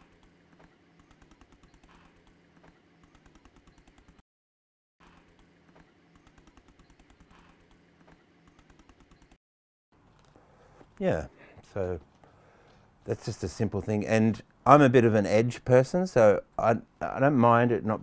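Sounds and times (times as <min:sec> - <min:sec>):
faint steady hum: 0:10.0 - 0:17.4.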